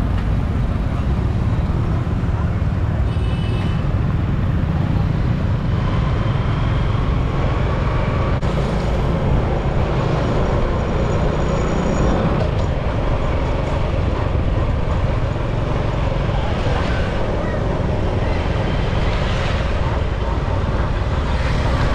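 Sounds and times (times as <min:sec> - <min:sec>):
street traffic rumble: 0:00.0 - 0:21.9.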